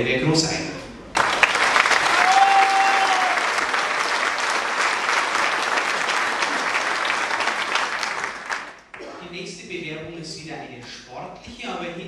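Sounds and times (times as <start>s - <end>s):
audience applauding: 1.1s - 9.0s.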